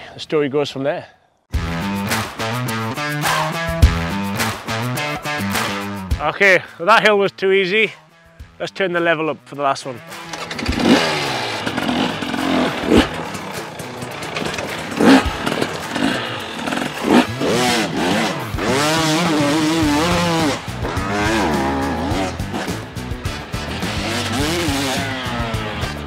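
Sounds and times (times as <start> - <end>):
motorcycle engine revving: 10.0 - 26.0.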